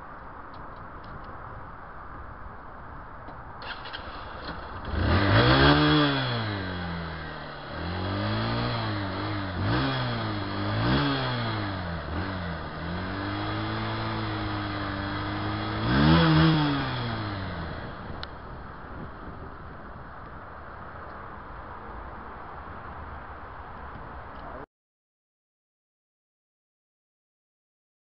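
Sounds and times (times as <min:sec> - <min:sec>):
motorcycle engine revving: 0:03.6 - 0:19.6.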